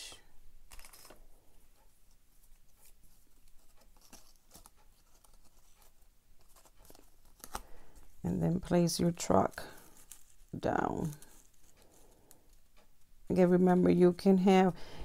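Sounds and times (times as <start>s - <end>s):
paper rustling: 0.7s - 1.3s, 2.1s - 12.7s.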